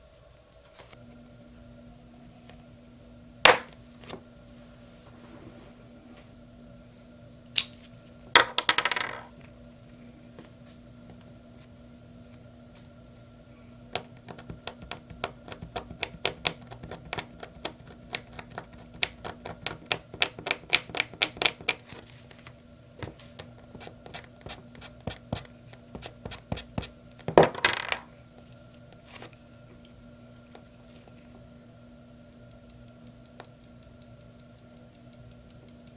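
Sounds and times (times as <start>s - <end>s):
knife scratching paper: 23.7s - 26.9s.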